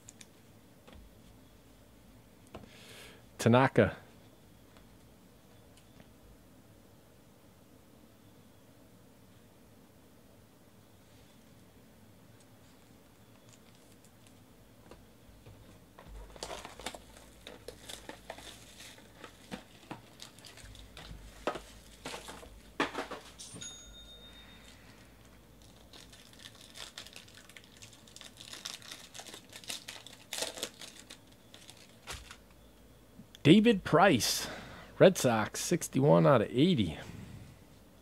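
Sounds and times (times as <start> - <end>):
foil wrapper crinkling and tearing: 16.2 - 22.4, 25.6 - 32.5.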